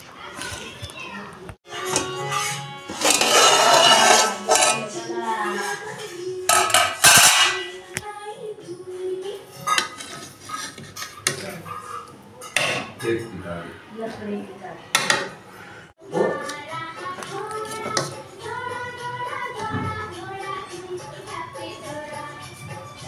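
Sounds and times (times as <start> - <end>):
spoon scraping a metal pot: 1.8 - 7.8, 9.5 - 13.1
pot lid clattering: 2.9 - 5.0, 6.5 - 7.8.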